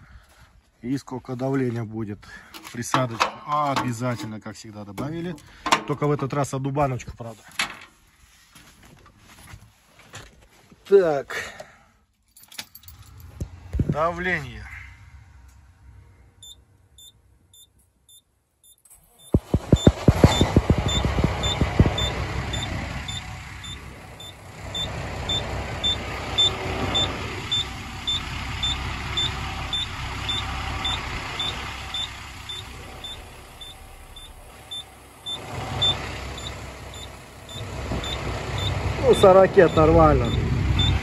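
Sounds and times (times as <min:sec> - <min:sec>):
diesel engine cranking and idling: 0:00.0 - 0:07.0, 0:12.8 - 0:18.0, 0:18.8 - 0:41.0
small warning beeps: 0:16.4 - 0:41.0.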